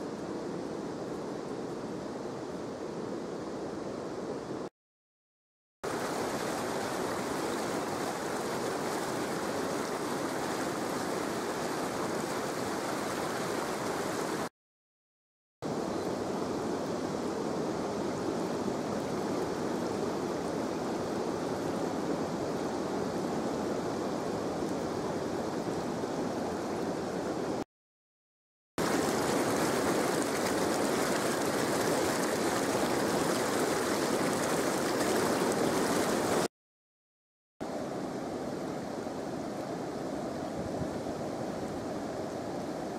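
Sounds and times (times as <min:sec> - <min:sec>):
shallow river flowing over stones: 0:05.9 - 0:14.5, 0:28.8 - 0:36.5.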